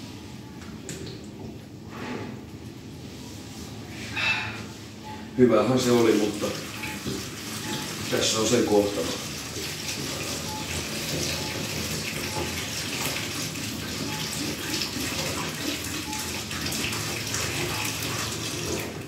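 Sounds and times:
water pouring into urinal: 5.9 - 19.0.

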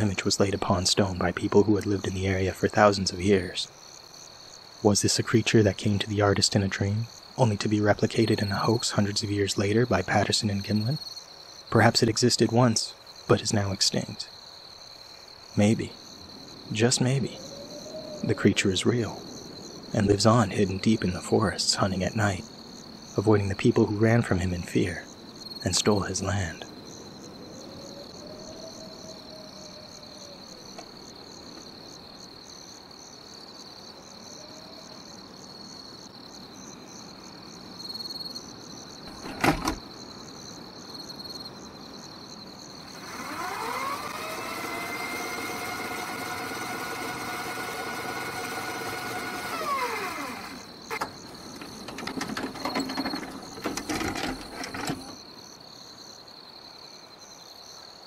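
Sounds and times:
crickets chirping: 0.0 - 58.0
mechanical clicks and clunks: 39.1 - 39.8, 50.9 - 55.2
tape motor whining: 42.9 - 55.2.

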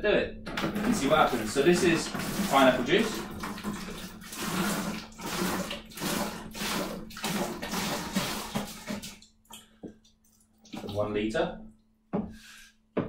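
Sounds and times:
juice glugging from a carton: 0.5 - 9.8
liquid splashing into plastic bucket: 0.5 - 11.1.

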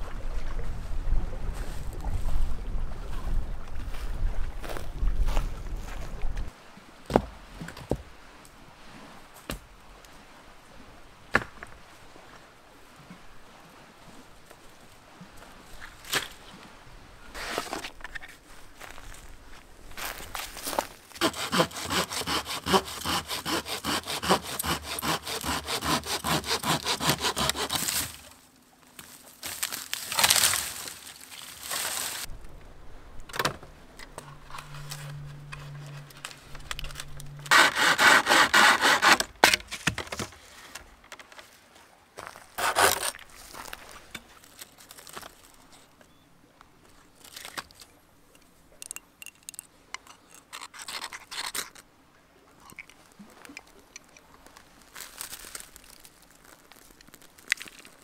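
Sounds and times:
hand saw cutting branch: 21.2 - 28.3, 35.6 - 39.9, 42.6 - 43.2, 50.4 - 51.8
rustling: 26.1 - 32.6, 33.7 - 41.6, 54.3 - 58.0
faint light scrapes: 34.0 - 37.5.

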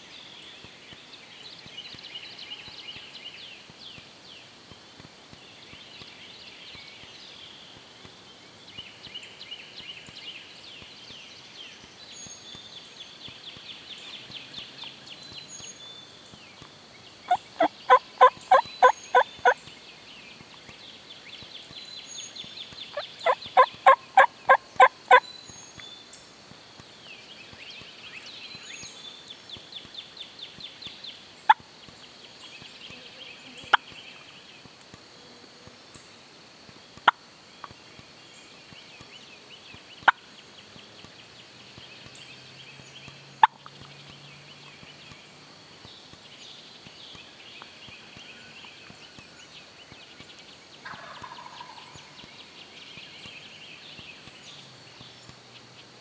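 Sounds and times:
turkey call clucks: 17.3 - 19.6, 22.9 - 25.2, 50.8 - 51.9.

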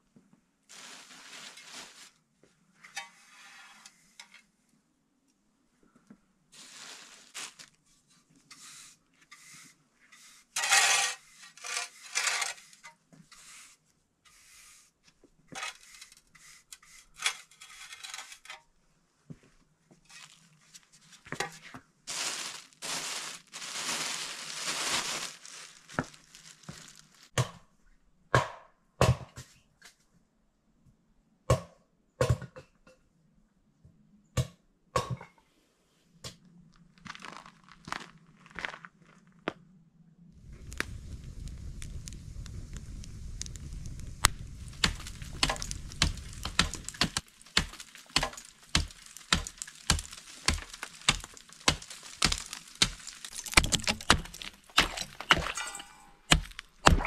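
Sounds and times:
rustling tearing handling noise: 0.7 - 2.2, 6.6 - 7.8, 22.1 - 27.4, 44.2 - 55.6.

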